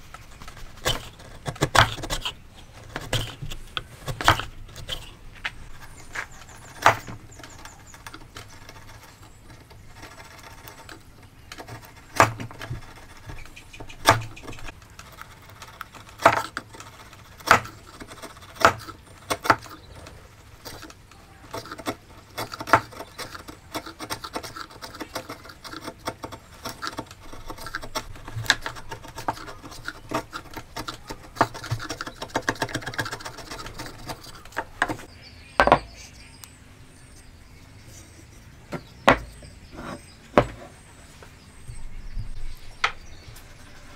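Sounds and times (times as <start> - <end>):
chisel scraping wood: 0.0 - 36.1, 37.9 - 40.8
sharp knocks on wood: 35.6 - 35.9, 38.7 - 39.3.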